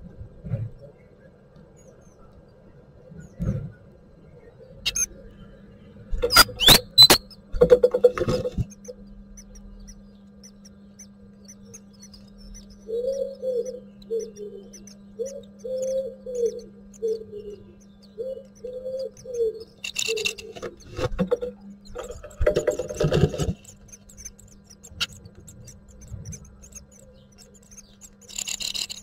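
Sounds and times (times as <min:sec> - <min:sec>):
steady low hum: 0:00.0 - 0:29.0
nestlings cheeping: 0:04.8 - 0:05.4, 0:06.0 - 0:29.0
dove cooing: 0:12.8 - 0:23.7
rustling in nest box: 0:22.0 - 0:23.8.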